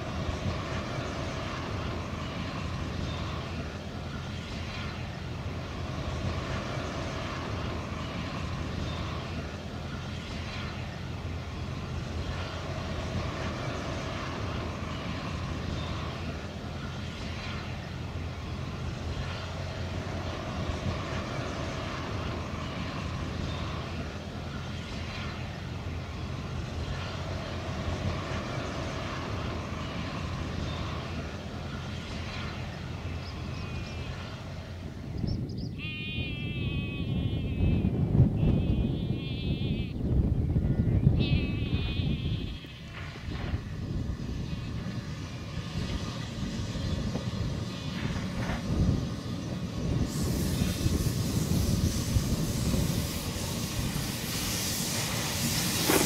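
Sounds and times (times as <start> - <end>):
train wheels rumbling on track: 0.0 - 35.8, 36.4 - 56.0.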